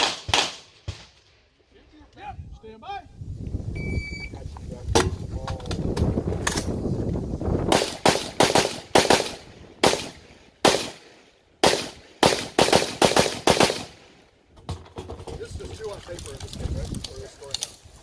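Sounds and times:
rapid gunshots: 7.7s - 11.0s, 11.6s - 14.0s.

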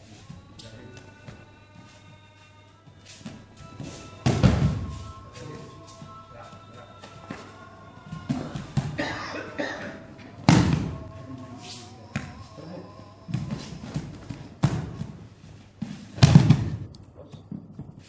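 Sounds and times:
bodies thudding on foam mats: 3.3s - 5.0s, 8.2s - 9.1s, 13.3s - 16.9s.

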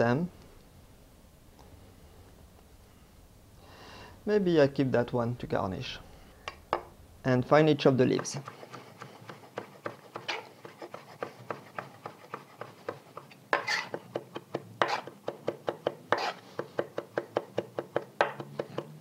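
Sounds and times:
knife chopping on wooden board: 8.1s - 19.0s
knife blade scraping board: 8.2s - 14.2s, 14.8s - 15.2s, 16.1s - 16.8s.

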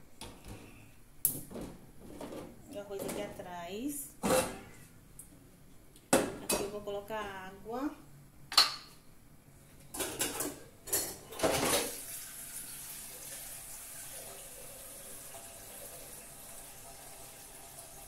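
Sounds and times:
water pouring into a pot: 11.9s - 18.0s.

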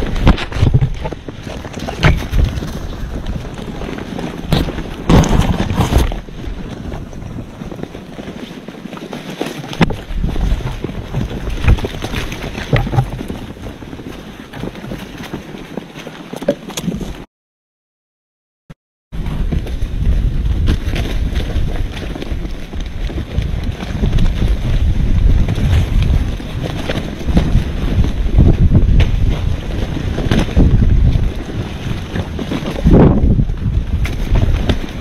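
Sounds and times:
thumps and rustles: 0.0s - 17.2s
wind rumbling on microphone: 0.0s - 17.3s, 19.2s - 35.0s.

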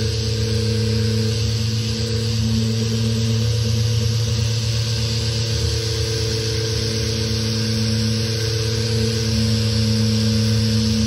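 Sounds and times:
orbital sander motor hum: 0.0s - 11.0s.

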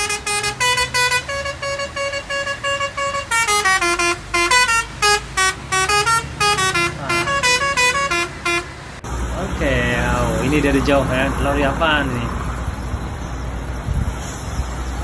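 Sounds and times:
multi-tone air horn tune: 0.0s - 8.7s.

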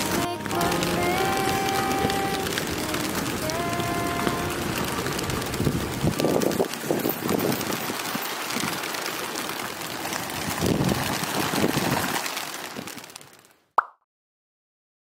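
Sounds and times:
pigeon wingbeats fluttering: 0.0s - 13.6s.

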